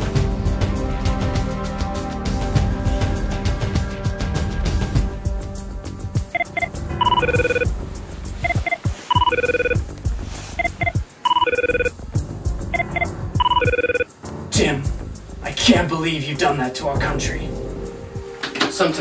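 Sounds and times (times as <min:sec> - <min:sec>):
background music: 0:00.0 - 0:19.0
mobile phone ringtone: 0:06.3 - 0:07.7, 0:08.4 - 0:09.8, 0:10.6 - 0:12.0, 0:12.7 - 0:14.1.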